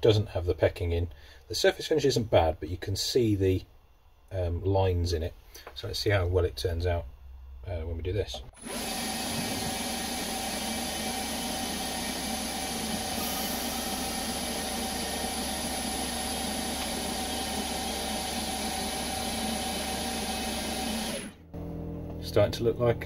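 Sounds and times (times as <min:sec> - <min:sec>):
lathe humming and whining: 0:08.6 - 0:21.5.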